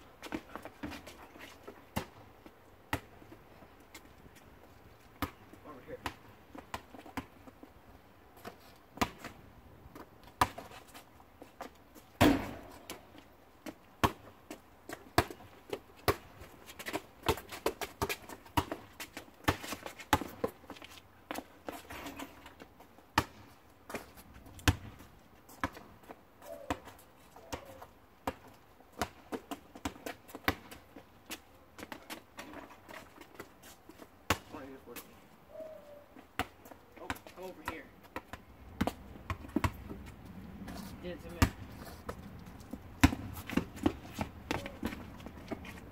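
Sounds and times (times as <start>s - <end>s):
basketball bouncing on asphalt: 1.8s - 4.1s, 5.0s - 7.7s, 8.4s - 11.0s, 11.6s - 34.7s, 36.3s - 45.9s
sneaker footsteps: 36.3s - 45.9s.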